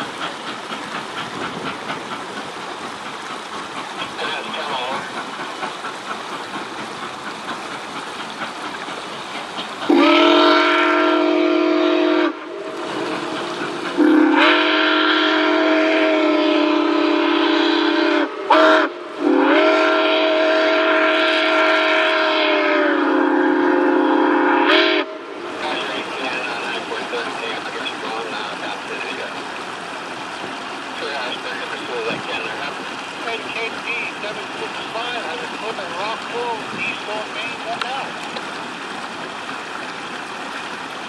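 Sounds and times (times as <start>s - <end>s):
train running noise: 0.0s - 41.0s
steam whistle blasts: 9.9s - 13.4s, 14.0s - 25.5s.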